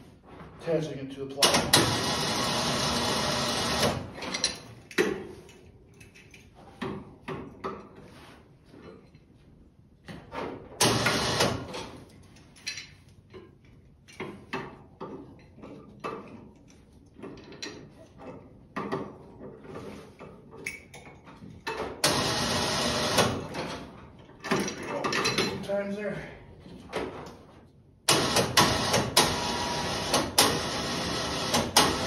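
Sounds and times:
steel parts clanking and rattling: 0:04.2 - 0:06.6, 0:23.5 - 0:25.8.

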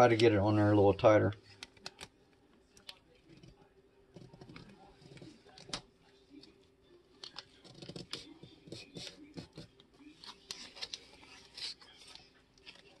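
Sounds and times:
tape crinkling and rubbing: 0:10.1 - 0:13.0.

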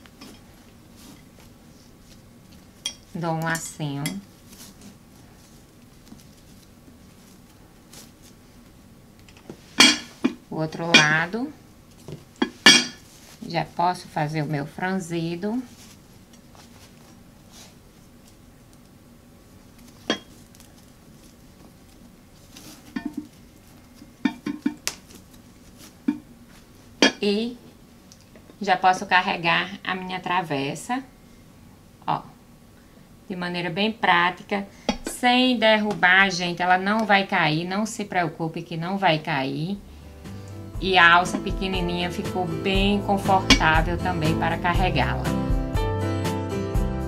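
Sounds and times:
faint rustling of fabric: 0:04.3 - 0:10.3, 0:15.3 - 0:18.5, 0:19.5 - 0:24.2.

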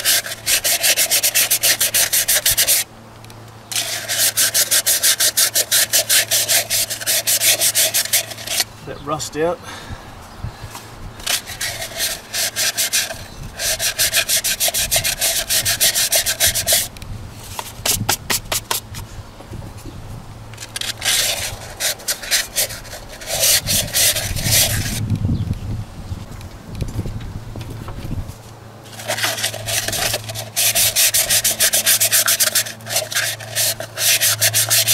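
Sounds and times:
sandpaper rasping on metal: 0:00.0 - 0:02.8, 0:03.7 - 0:09.3, 0:11.2 - 0:16.9, 0:20.7 - 0:25.0, 0:28.9 - 0:34.9.

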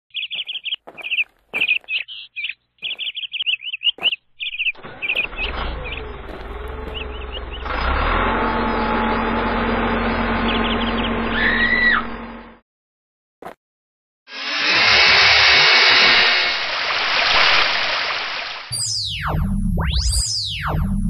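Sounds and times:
small birds chirping: 0:00.1 - 0:12.1
low engine rumble: 0:04.8 - 0:12.6.

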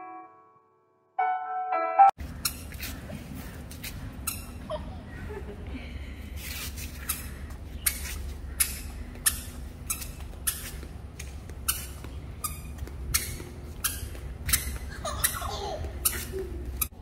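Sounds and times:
toddler footsteps on tiles: 0:02.2 - 0:04.7, 0:06.4 - 0:17.0.

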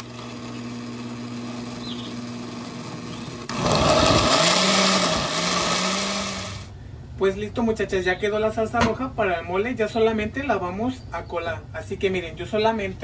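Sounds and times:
electric blender running: 0:00.0 - 0:06.7.

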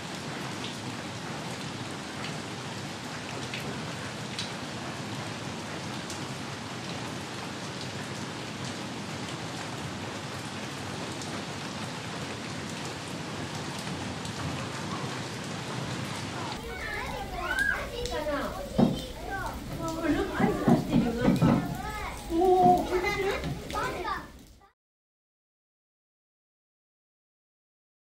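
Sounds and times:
steady rain hiss: 0:00.0 - 0:24.7
raindrop ticks: 0:16.5 - 0:24.7.

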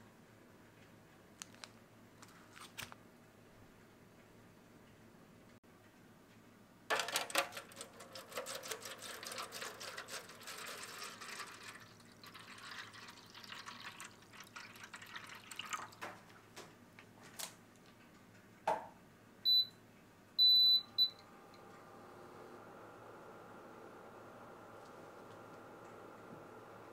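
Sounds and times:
water glugging and splashing: 0:08.1 - 0:16.3
knock: 0:18.7 - 0:18.9.

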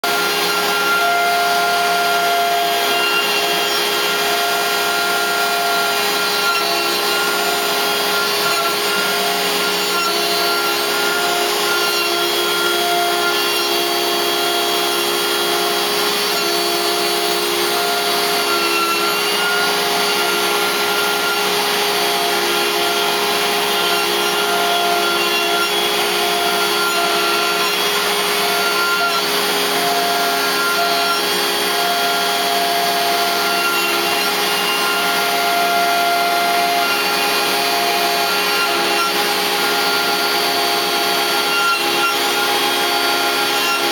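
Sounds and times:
router cutting wood: 0:00.0 - 0:43.9.

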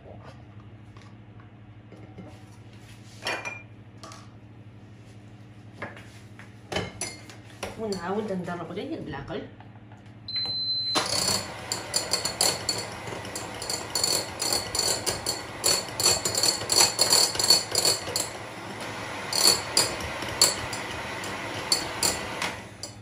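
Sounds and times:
electric hand mixer running: 0:11.0 - 0:23.0
whisk beaters clattering on glass bowl: 0:11.2 - 0:18.4, 0:19.3 - 0:23.0.

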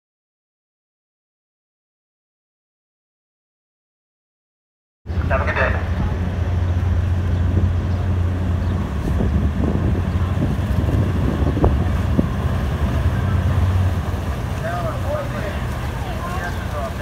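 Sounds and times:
diesel engines humming: 0:05.1 - 0:17.0.

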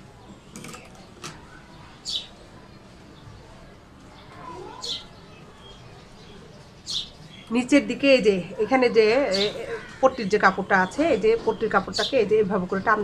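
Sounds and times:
high bird chirps: 0:04.6 - 0:07.5.

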